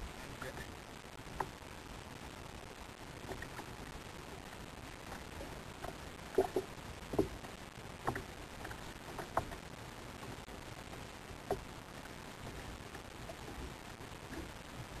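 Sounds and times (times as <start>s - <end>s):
sea noise: 0.0s - 15.0s
wind: 0.0s - 15.0s.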